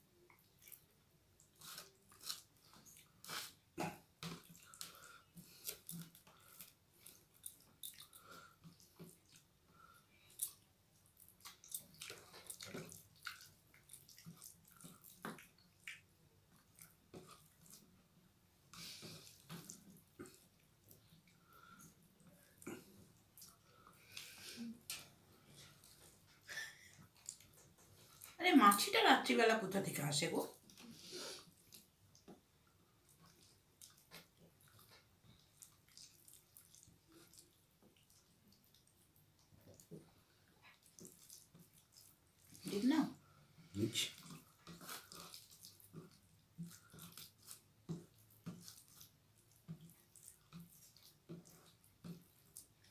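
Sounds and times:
chewing: 0.3 - 18.1, 18.7 - 28.4, 30.5 - 52.9
fingers squelching mushy rice: 44.1 - 52.9.

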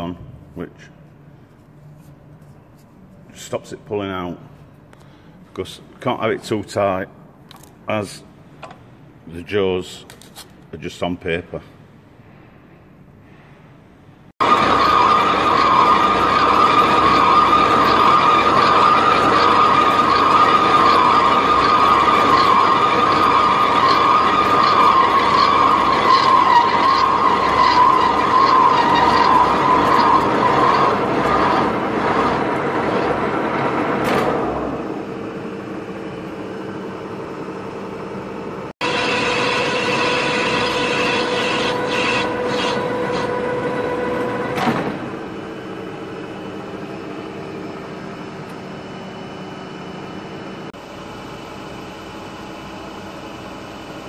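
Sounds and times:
lathe cutting metal: 14.4 - 34.6, 38.8 - 48.3.

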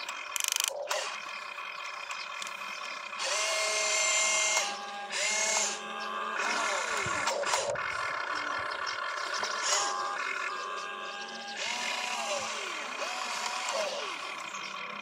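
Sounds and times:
small electric motors whining: 0.0 - 15.0.

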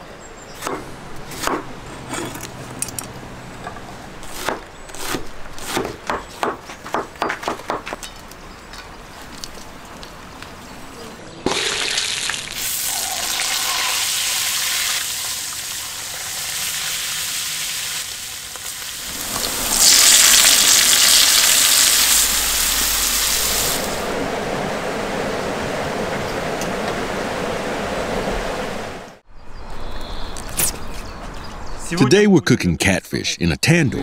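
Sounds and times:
food sizzling in a pan: 11.6 - 24.0.

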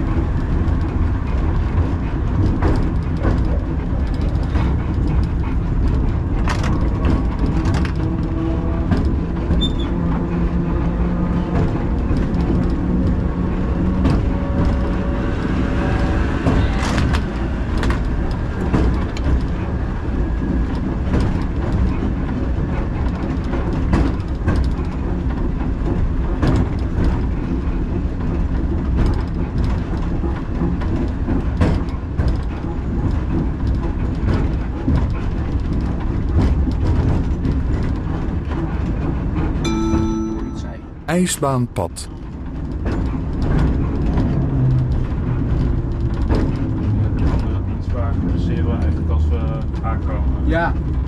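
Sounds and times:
wheels clicking over rail joints: 0.0 - 10.8, 16.4 - 39.4
tram running gear rumble: 0.0 - 40.3, 42.1 - 51.0.

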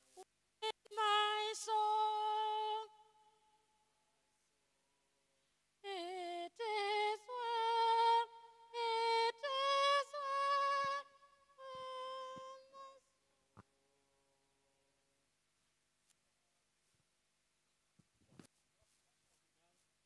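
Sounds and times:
woman singing unaccompanied: 0.0 - 3.6, 5.8 - 13.2.

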